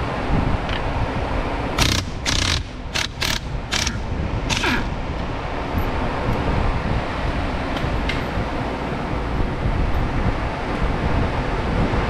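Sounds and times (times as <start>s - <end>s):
ratchet wrench ratcheting: 1.8s - 4.9s.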